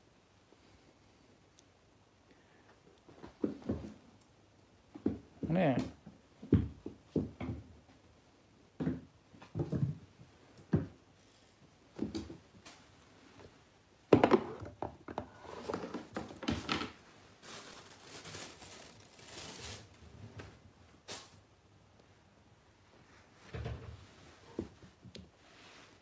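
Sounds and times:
kitten thumping and pattering: 0:08.8 - 0:11.0
plastic bags crinkling: 0:15.7 - 0:20.0.

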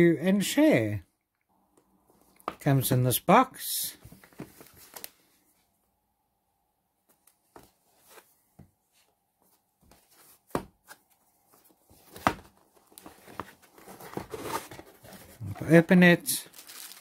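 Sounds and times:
cardboard box rustling: 0:09.9 - 0:15.8.

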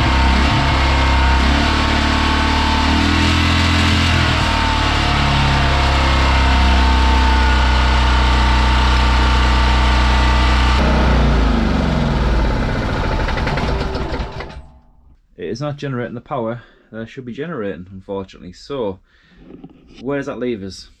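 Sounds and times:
generator engine running: 0:00.0 - 0:14.7.

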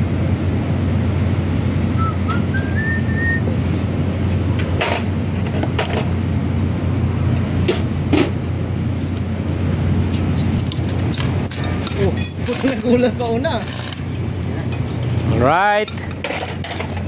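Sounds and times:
steady low hum: 0:00.0 - 0:17.0
short rising whistle: 0:01.9 - 0:03.6.

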